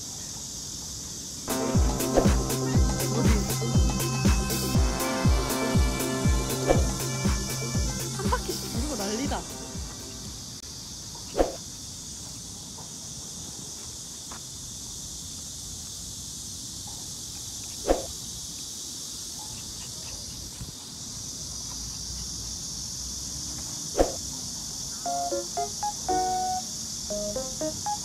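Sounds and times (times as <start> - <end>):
insects chirring: 0.0 - 28.0.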